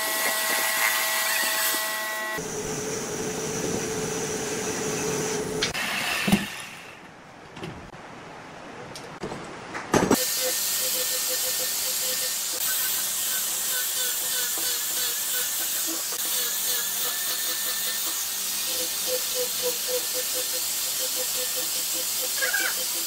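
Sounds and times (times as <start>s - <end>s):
angle grinder sanding wood: 0.0s - 2.4s, 10.2s - 23.0s.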